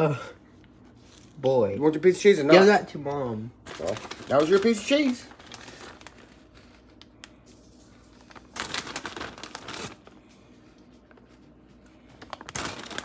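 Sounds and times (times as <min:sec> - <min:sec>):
plastic bag crinkling: 0:03.6 - 0:13.0.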